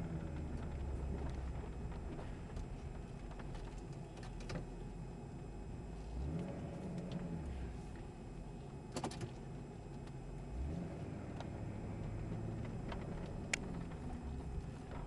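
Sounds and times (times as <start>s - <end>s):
truck engine running: 0.0s - 4.2s, 6.2s - 15.0s
road noise: 10.4s - 15.0s.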